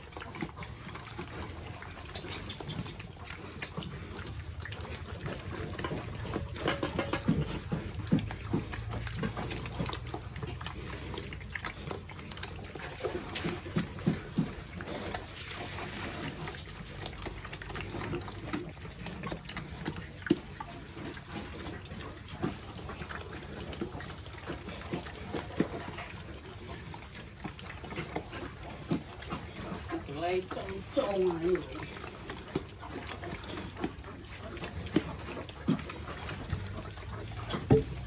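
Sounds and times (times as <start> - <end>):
pigs chomping and slurping: 0.0 - 38.0.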